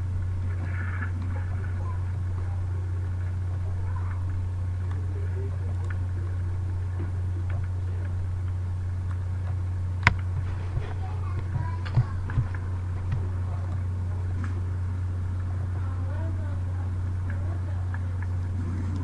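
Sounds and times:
steady low hum: 0.0 - 19.0
sharp clicks: 5.7 - 14.6.

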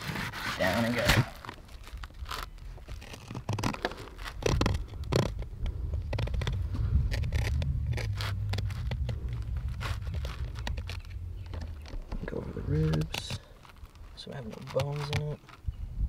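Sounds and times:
low rumble: 4.0 - 14.2.

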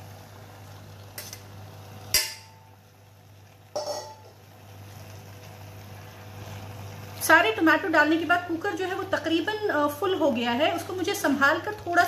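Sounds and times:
metal bowl knocking on pot rim: 3.8 - 4.4.

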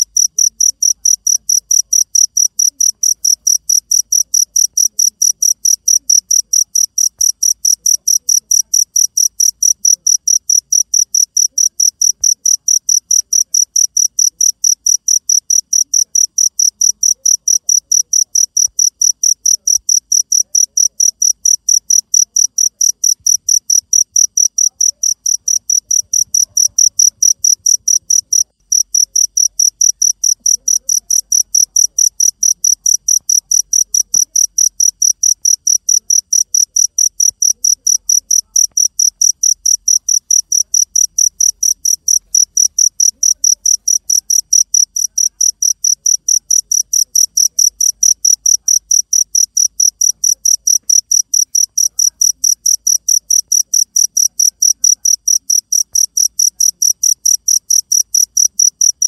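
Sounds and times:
cricket chirping: 0.0 - 59.0.

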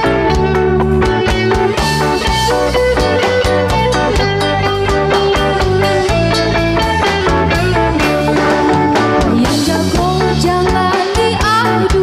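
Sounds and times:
band playing upbeat rock: 0.0 - 12.0
woman singing: 8.0 - 12.0.

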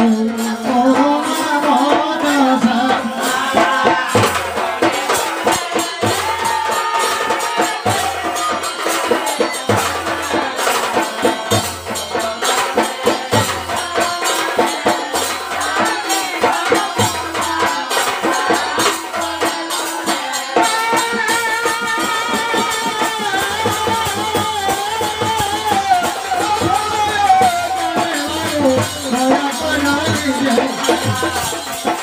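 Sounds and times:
jingling metal percussion: 0.0 - 32.0
deep drum beat: 20.6 - 32.0.

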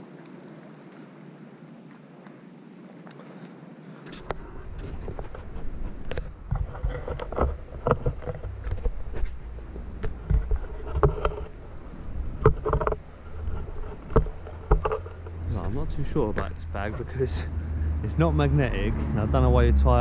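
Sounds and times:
steady low rumble: 4.4 - 20.0.

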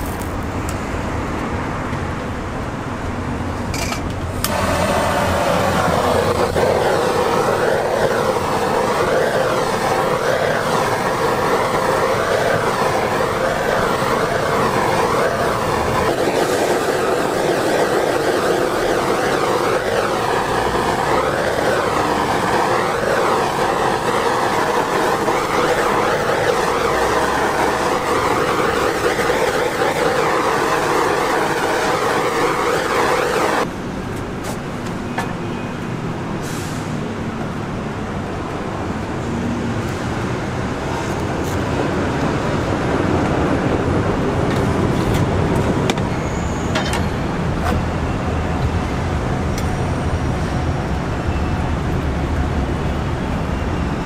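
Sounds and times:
oven whirring: 4.4 - 33.7.

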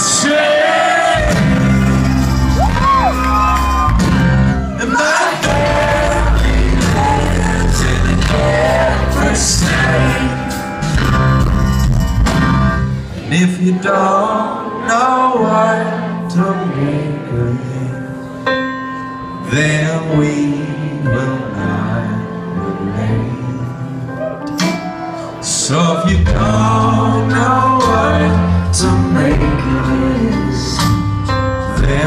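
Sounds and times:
people singing: 0.0 - 2.6, 4.8 - 10.9, 13.1 - 18.2, 19.5 - 24.3, 25.4 - 31.0
guitar: 0.0 - 16.7, 22.6 - 32.0
heavy bass and drums: 5.5 - 12.9.

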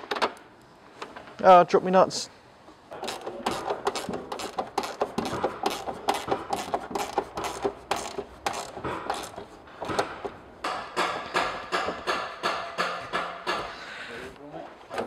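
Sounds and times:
ratchet spanner clicking: 3.0 - 9.4.

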